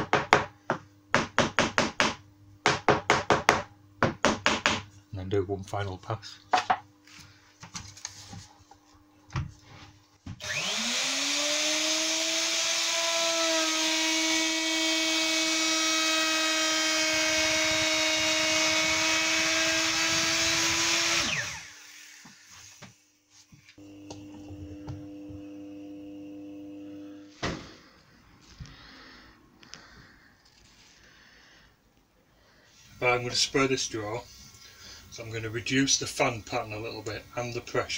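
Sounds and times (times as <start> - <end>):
router cutting wood: 10.4 - 22.8
steady hum: 21.3 - 37.9.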